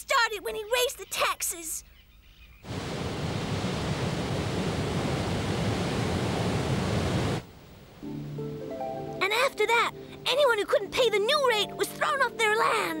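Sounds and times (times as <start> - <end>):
waterfall rushing: 2.7 - 7.7.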